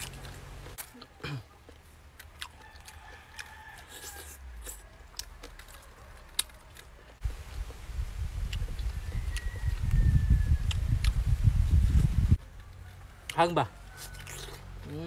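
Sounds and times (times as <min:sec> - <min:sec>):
chewing and lip smacks: 0:00.0 - 0:07.7, 0:08.4 - 0:10.0, 0:10.6 - 0:11.2, 0:14.0 - 0:14.9.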